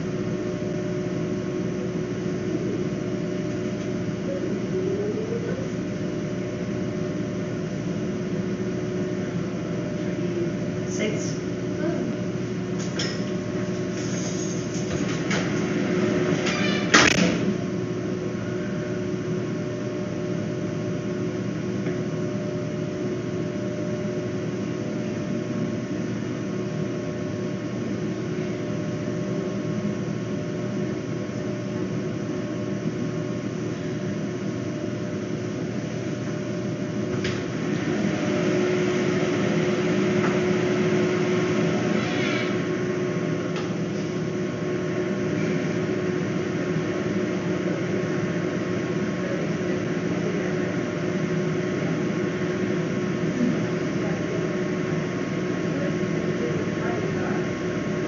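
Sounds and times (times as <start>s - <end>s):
machine hum with steady tones: 0.0s - 58.0s.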